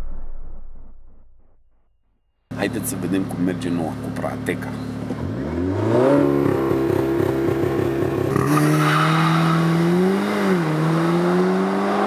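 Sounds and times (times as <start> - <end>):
car engine under throttle: 2.6 - 12.0.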